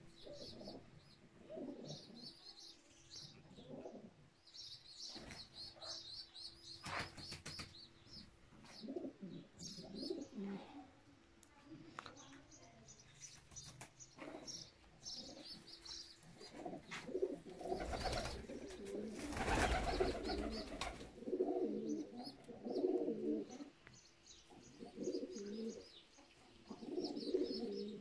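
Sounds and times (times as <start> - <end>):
pigeons cooing: 0.0 - 2.3, 3.5 - 4.2, 8.7 - 10.7, 16.4 - 23.8, 24.6 - 26.0, 26.7 - 28.0.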